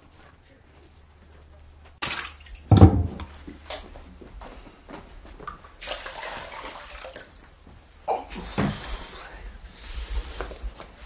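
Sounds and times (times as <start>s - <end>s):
wooden dipper knocking: 2.0s - 3.3s
water clinks and splashes: 5.5s - 8.0s
water pouring and trickling: 5.8s - 7.6s.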